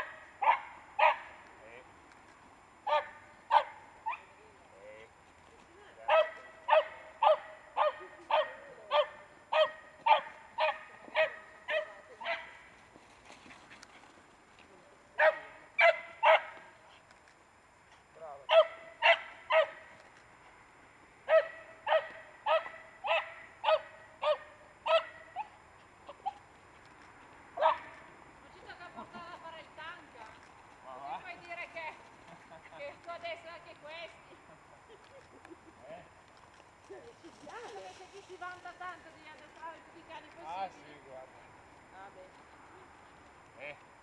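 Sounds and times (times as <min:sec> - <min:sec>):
small dog barking: 0:00.0 - 0:01.4, 0:02.8 - 0:04.4, 0:06.1 - 0:12.6, 0:15.2 - 0:16.6, 0:18.5 - 0:19.9, 0:21.3 - 0:25.5, 0:27.6 - 0:28.0.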